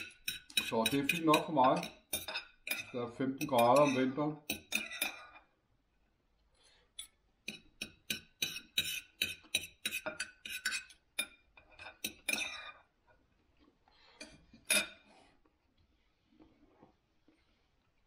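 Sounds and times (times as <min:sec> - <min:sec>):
cutlery clinking on a plate: 0:00.0 - 0:05.5, 0:07.0 - 0:12.8.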